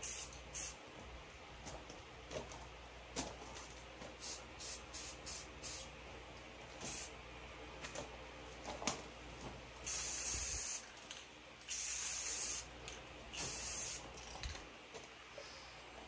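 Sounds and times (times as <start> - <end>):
spray paint can hissing: 0.0 - 0.8, 4.2 - 5.9, 6.8 - 7.1, 9.8 - 10.9, 11.6 - 12.7, 13.3 - 14.3.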